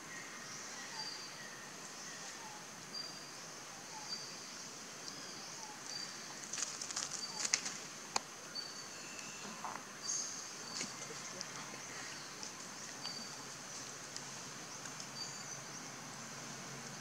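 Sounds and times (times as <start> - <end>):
insect drone: 0.0 - 17.0
dry leaves crackling: 6.3 - 8.0.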